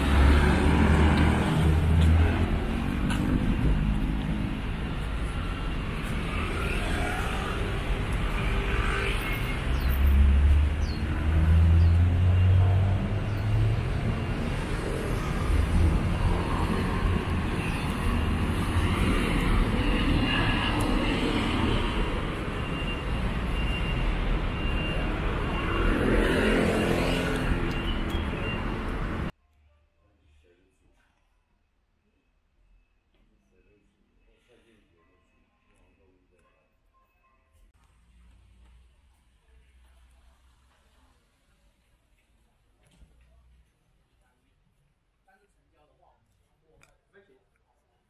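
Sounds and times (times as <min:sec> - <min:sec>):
motor vehicles passing: 0:00.0 - 0:29.3.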